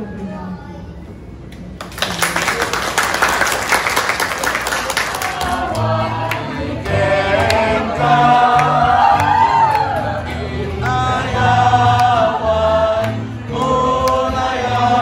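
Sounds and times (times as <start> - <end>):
crowd applause: 1.8 - 11.0
group singing: 4.9 - 15.0
acoustic guitar: 5.4 - 15.0.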